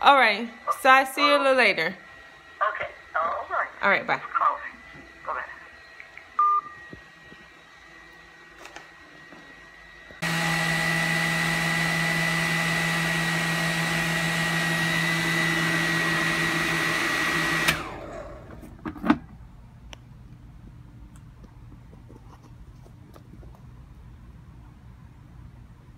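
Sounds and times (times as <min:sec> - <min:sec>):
dryer winding down: 0:00.0 - 0:19.4
hood dryer running: 0:00.0 - 0:21.0.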